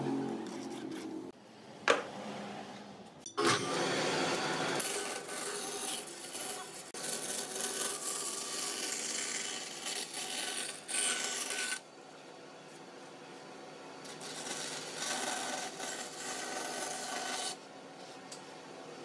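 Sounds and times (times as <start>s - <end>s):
band saw cutting wood: 3.4s - 11.8s, 14.1s - 17.6s.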